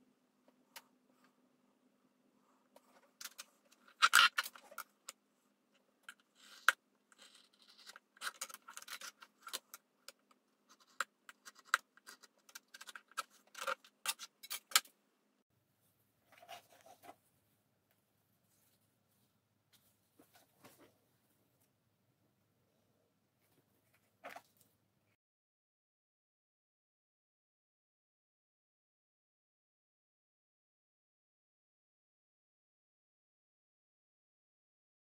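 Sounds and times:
soft rustle: 0:18.3 - 0:21.7.

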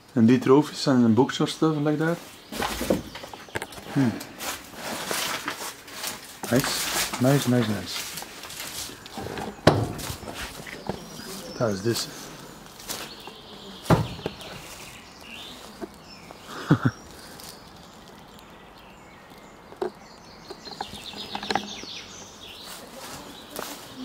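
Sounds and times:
footsteps through tall grass: 0:04.3 - 0:18.5, 0:22.2 - 0:24.0
sharp knocks: 0:09.6 - 0:10.2, 0:13.8 - 0:14.4.

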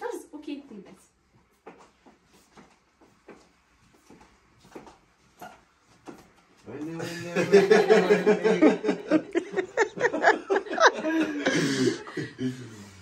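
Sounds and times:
people laughing loudly: 0:07.0 - 0:12.8
breathy exhale: 0:11.4 - 0:13.0.

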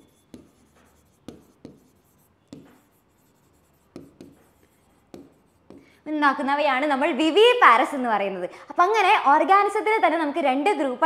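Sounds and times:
pen tapping and scraping whiteboard: 0:00.0 - 0:06.0.

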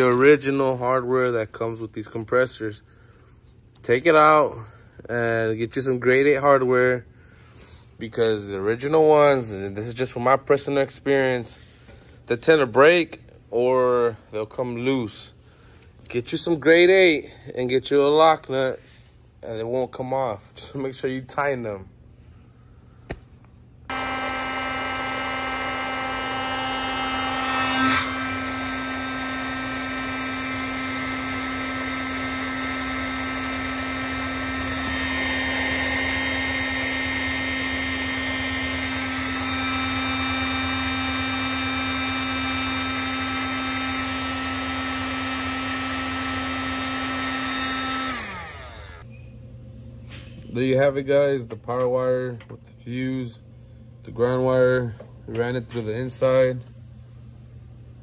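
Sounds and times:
heat gun fan humming: 0:00.0 - 0:02.1, 0:22.8 - 0:49.3.

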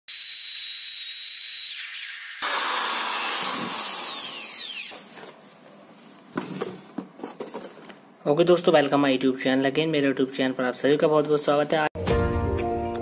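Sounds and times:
electric drill drilling into brick: 0:00.1 - 0:05.0.

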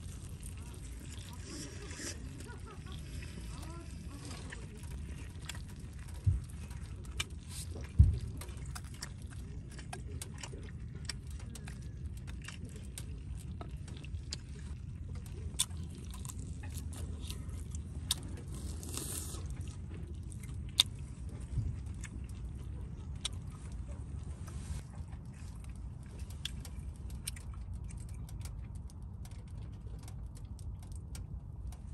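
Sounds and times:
steady low rumble: 0:00.0 - 0:31.9.

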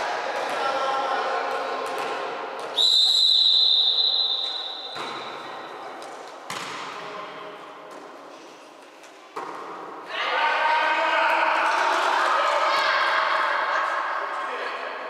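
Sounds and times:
volleyball hits echoing: 0:00.2 - 0:02.8, 0:04.2 - 0:08.2, 0:09.0 - 0:10.1
referee's whistle blast: 0:02.8 - 0:05.3.

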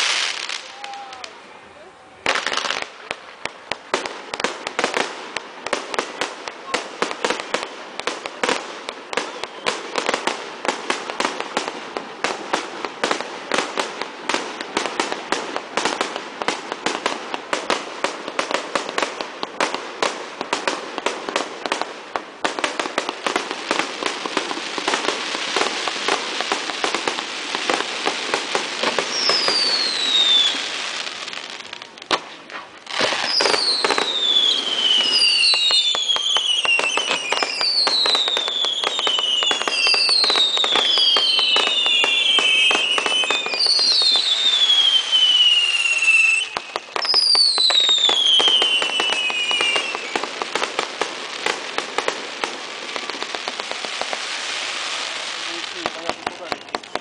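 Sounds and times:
fireworks bangs: 0:00.0 - 0:57.0
fireworks crackle: 0:00.0 - 0:57.0
whistling fireworks shells: 0:09.2 - 0:10.0, 0:28.8 - 0:31.2, 0:32.4 - 0:50.4, 0:55.8 - 0:57.0.

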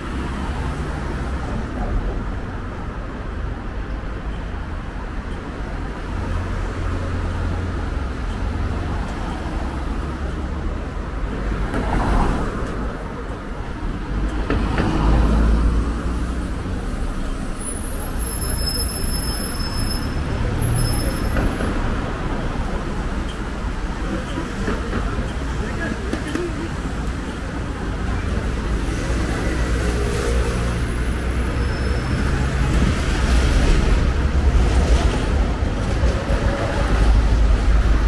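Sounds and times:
bus passing: 0:00.0 - 0:38.0
traffic rumble: 0:00.0 - 0:38.0
high thin squeal: 0:17.7 - 0:21.2.

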